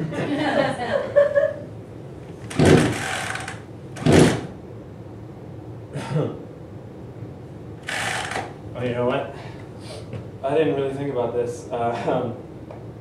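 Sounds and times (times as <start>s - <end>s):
chainsaw starter cord pulls: 2.5s - 4.4s, 7.8s - 8.5s.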